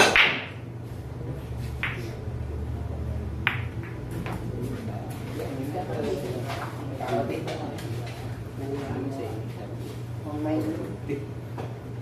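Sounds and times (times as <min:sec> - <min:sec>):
pool balls clacking: 0:00.0 - 0:00.6, 0:03.4 - 0:04.4.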